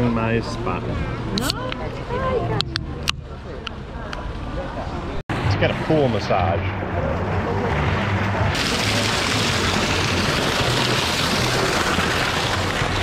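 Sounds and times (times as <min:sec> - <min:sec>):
water pouring into pool: 0:08.5 - 0:13.0.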